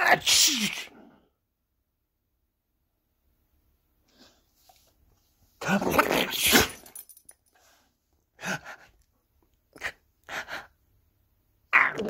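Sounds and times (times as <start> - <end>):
person fake sneezing: 0.1 - 1.1.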